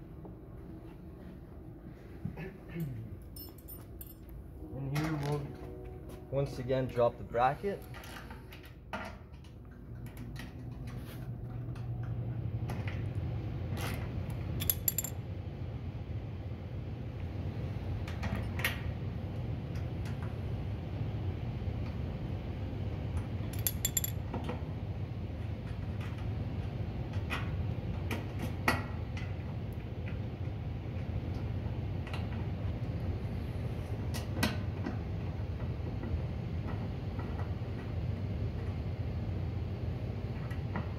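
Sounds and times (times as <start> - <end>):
steady low hum: 0.0 - 40.9
small metal clicks and rattles: 14.6 - 15.2, 23.6 - 24.2.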